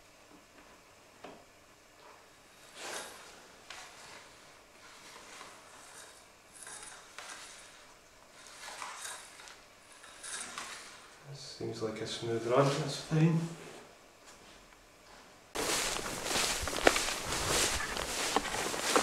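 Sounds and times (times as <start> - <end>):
soft rustles: 2.0 - 11.2, 12.3 - 19.0.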